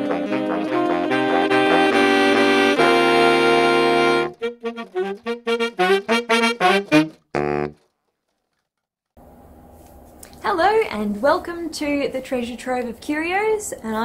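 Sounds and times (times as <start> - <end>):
jazzy horn music: 0.0 - 7.9.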